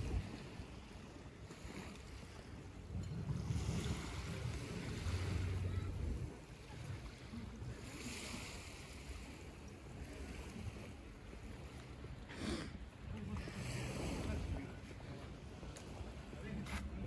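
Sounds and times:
small waves on pebble shore: 0:00.0 - 0:11.8
wind buffeting microphone: 0:02.2 - 0:07.8.

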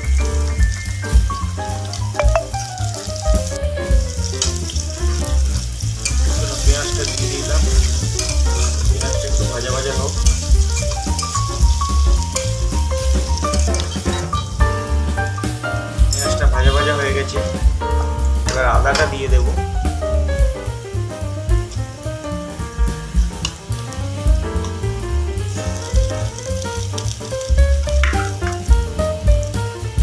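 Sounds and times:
onions sizzling in hot oil: 0:00.0 - 0:30.0
music with heavy bass beat: 0:10.2 - 0:16.3, 0:19.6 - 0:30.0.

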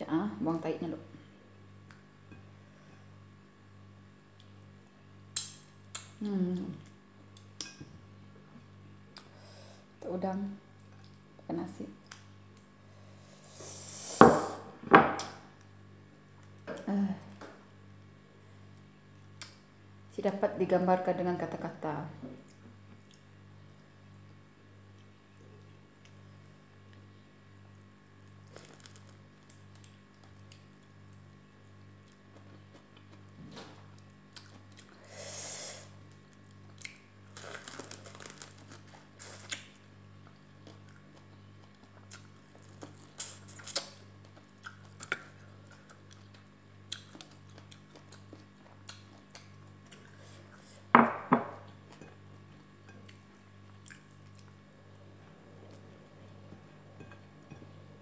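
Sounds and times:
steady low hum: 0:00.0 - 0:58.0
person chewing prawns: 0:34.0 - 0:35.0, 0:36.1 - 0:50.6, 0:52.6 - 0:55.0.

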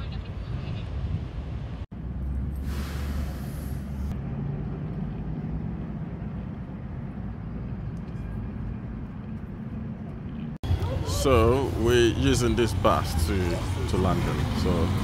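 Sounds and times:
coach engines idling: 0:10.6 - 0:15.0.

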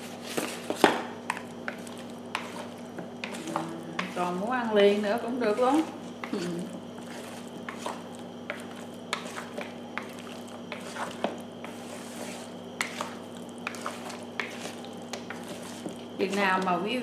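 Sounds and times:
faint steady hum: 0:00.0 - 0:17.0
soft stirring in a bowl: 0:00.0 - 0:17.0.

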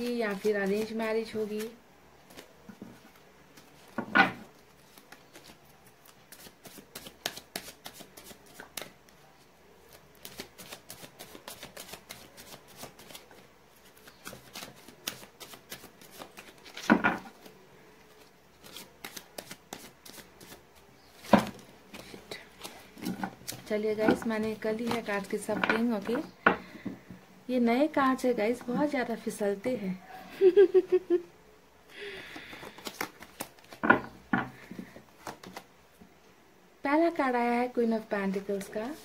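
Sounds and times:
cards shuffling: 0:00.0 - 0:09.2, 0:09.8 - 0:26.2, 0:32.2 - 0:35.7.

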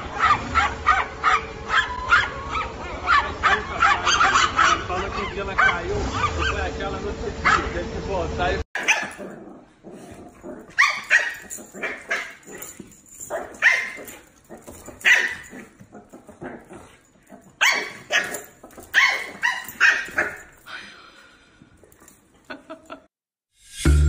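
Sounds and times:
puppies barking and yipping: 0:00.0 - 0:06.8, 0:07.4 - 0:07.8, 0:08.8 - 0:20.8.

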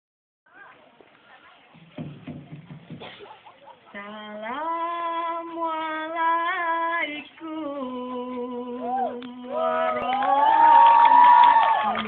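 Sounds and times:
person singing unaccompanied: 0:03.9 - 0:10.4.

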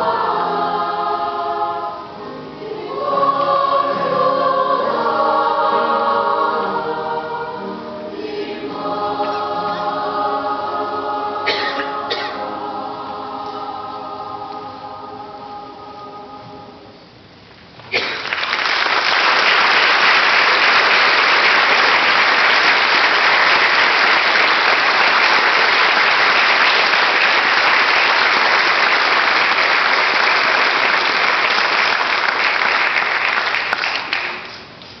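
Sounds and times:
audience applauding: 0:18.0 - 0:34.6.

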